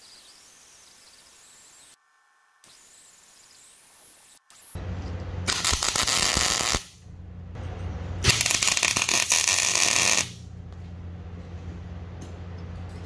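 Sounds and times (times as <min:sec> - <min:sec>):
welding crackling sizzle: 0:00.0 - 0:02.0, 0:05.4 - 0:07.0, 0:08.2 - 0:10.4
steady low hum: 0:04.8 - 0:13.0.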